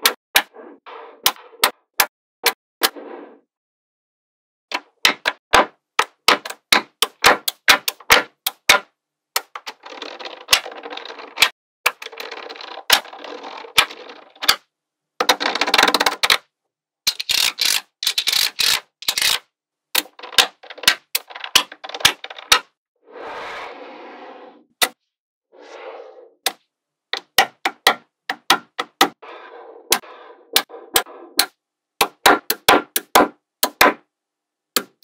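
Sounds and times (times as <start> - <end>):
magnetic balls clicking together: 17.1 - 19.4.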